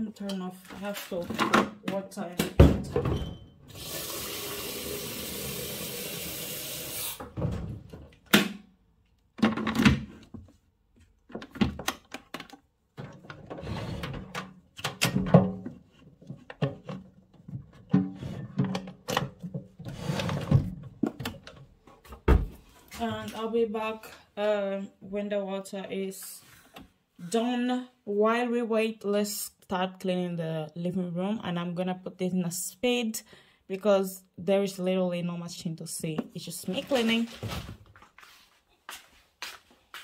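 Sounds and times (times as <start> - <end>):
water running from tap: 3.7 - 7.2.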